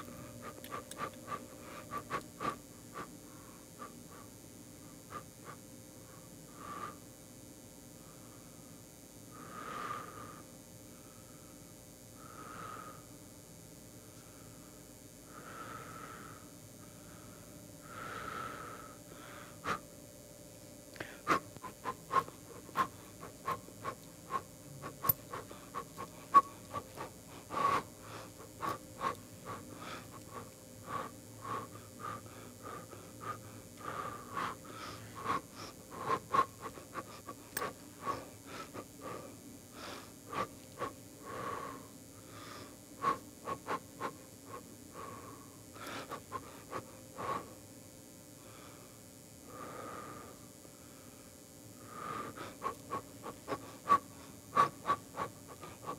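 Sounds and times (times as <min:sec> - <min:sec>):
faint steady hum: 0:00.0 - 0:55.9
person sniffing: 0:21.0 - 0:45.2.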